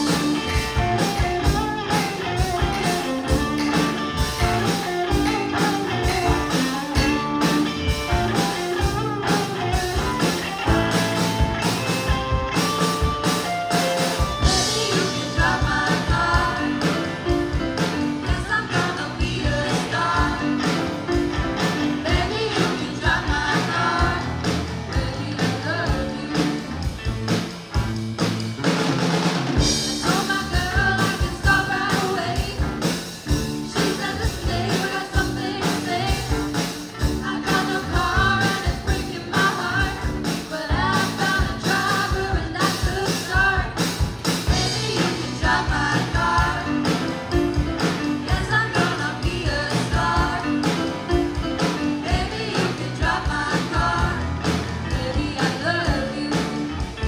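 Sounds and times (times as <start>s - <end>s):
drum kit: 0.0s - 57.0s
electric guitars and bass: 0.0s - 57.0s
person singing lead vocal: 14.2s - 26.9s, 29.8s - 32.9s, 33.6s - 57.0s.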